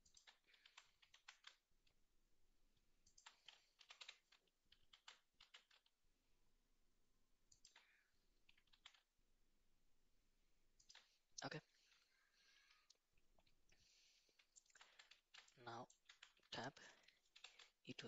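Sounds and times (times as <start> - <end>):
keyboard keys clicking: 0.0 - 1.6, 3.0 - 5.9, 7.5 - 7.9, 8.5 - 9.0, 14.4 - 17.8
mouse clicking: 0.0 - 1.6, 3.0 - 5.8, 7.5 - 9.0, 10.8 - 11.1.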